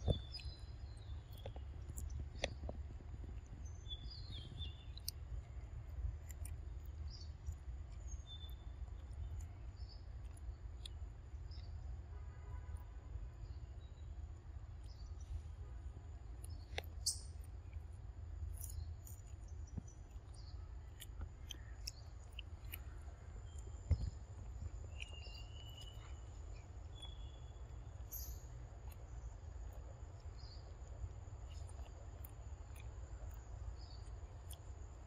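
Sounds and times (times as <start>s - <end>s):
bird chirps: 0.0s - 5.6s, 6.3s - 11.8s, 16.5s - 17.8s, 18.6s - 29.4s.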